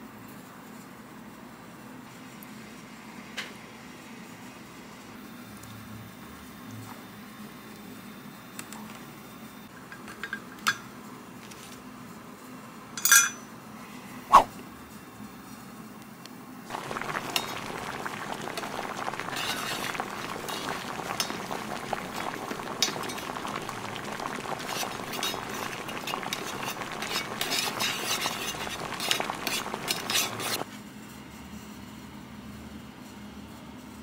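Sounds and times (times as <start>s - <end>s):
ladle clinking against pot: 13.0s - 13.4s
sauce bubbling in a pot: 16.7s - 30.6s.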